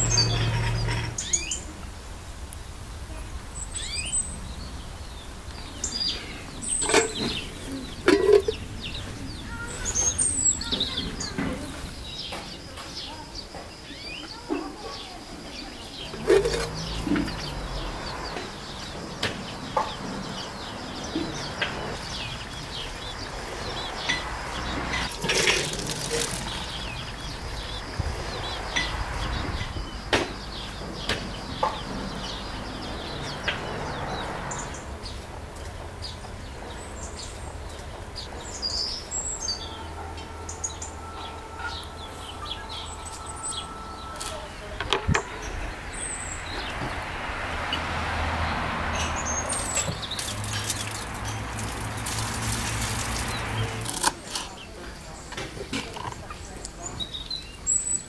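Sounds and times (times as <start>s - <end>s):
small birds chirping: 0.0s - 58.0s
chickens clucking: 5.5s - 33.8s
metal pots and utensils clinking: 6.6s - 8.7s, 16.1s - 17.5s, 24.9s - 26.8s, 49.6s - 54.6s.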